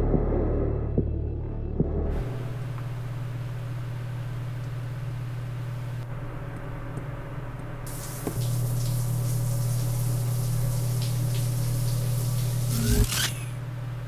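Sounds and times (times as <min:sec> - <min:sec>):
low steady drone: 0:00.0 - 0:07.6
shower spraying water: 0:07.9 - 0:13.5.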